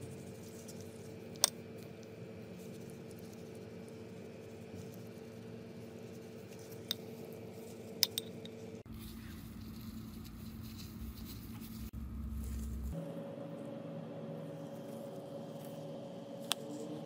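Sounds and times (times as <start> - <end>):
pastry brush wet brushing: 0.0 - 8.0, 8.8 - 13.0
steady low hum: 0.0 - 17.0.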